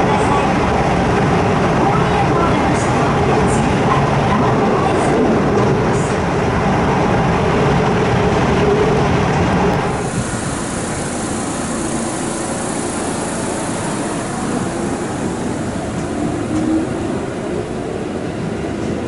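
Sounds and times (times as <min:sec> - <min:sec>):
electric train running: 0:00.0 - 0:19.0
faint rising whine: 0:09.8 - 0:18.7.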